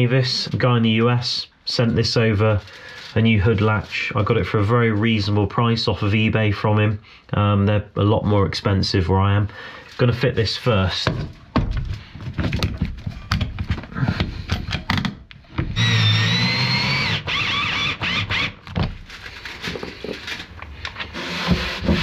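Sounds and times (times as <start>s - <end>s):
tools clicking and knocking: 12.4s - 15.8s
cordless drill running: 15.7s - 18.6s, 21.1s - 22.0s.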